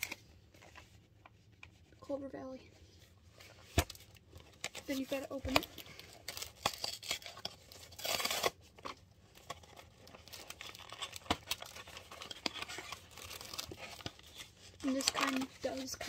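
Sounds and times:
cardboard box crinkling: 3.5 - 16.0
cardboard box ripping: 6.3 - 8.6.

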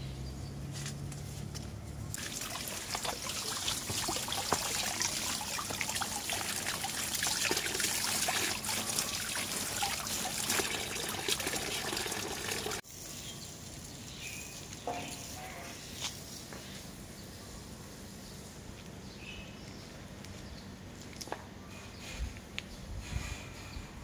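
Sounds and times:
outdoor background: 0.0 - 24.0
water trickling over leaves: 2.1 - 14.8.

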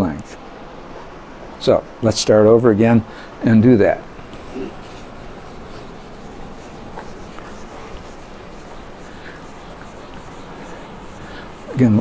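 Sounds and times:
eraser wiping whiteboard: 4.2 - 12.0.

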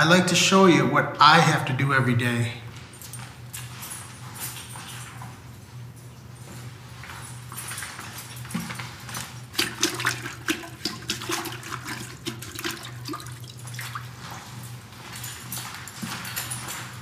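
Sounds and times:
steady low hum: 0.0 - 17.0
water sloshing in toilet bowl: 8.5 - 14.6.

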